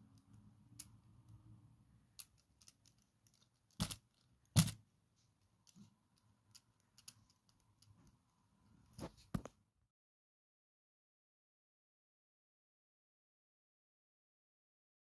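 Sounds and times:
plastic parts clicking and rattling: 2.2s - 4.8s.

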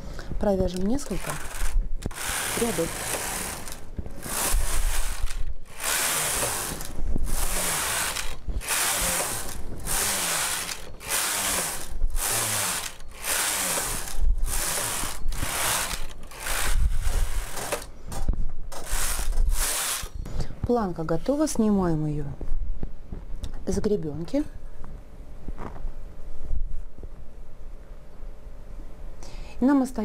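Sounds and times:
knitting machine carriage rattling whir: 0.7s - 17.9s, 18.7s - 20.2s.

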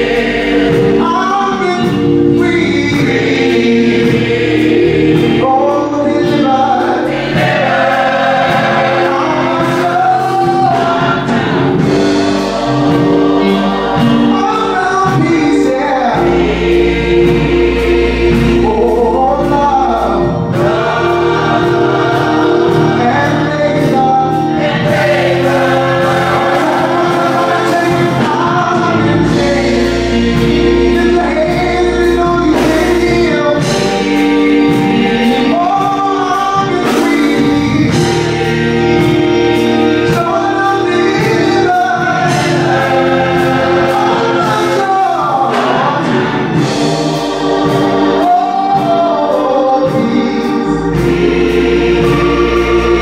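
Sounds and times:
male lead singer: 0.0s - 4.4s, 13.0s - 17.6s, 18.3s - 21.0s, 22.8s - 38.4s, 39.9s - 46.8s, 47.5s - 53.0s
choir singing in harmony: 0.0s - 53.0s.

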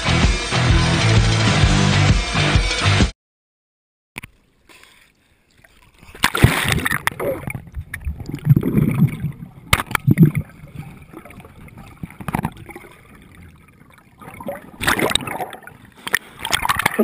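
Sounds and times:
sea water sloshing and gurgling: 4.6s - 17.0s.

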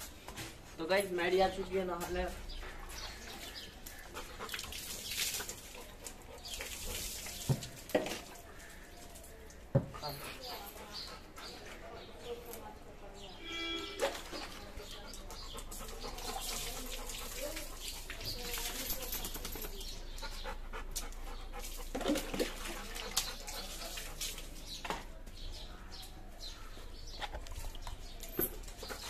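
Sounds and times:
dog panting: 2.4s - 7.4s, 10.0s - 12.4s, 14.8s - 24.6s.

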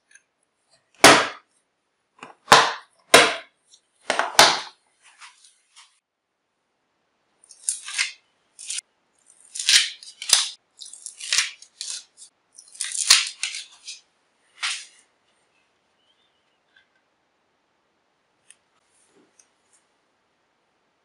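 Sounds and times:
paper rustling and tearing: 9.4s - 15.0s.

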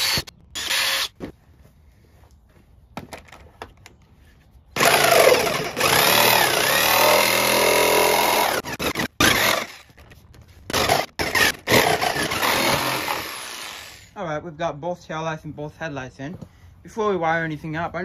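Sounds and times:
jigsaw cutting plastic: 4.8s - 10.0s, 10.7s - 14.1s.

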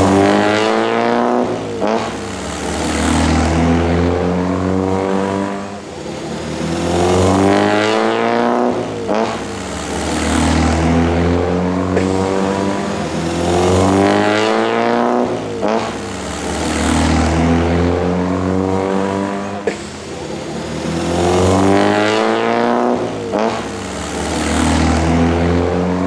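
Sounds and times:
sports cars driving past: 0.0s - 26.0s.

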